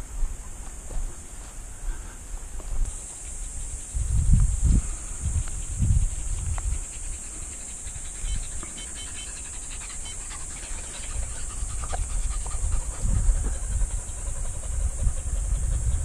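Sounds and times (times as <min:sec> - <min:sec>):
high hiss: 0:01.3 - 0:15.9
dog panting: 0:05.6 - 0:16.0.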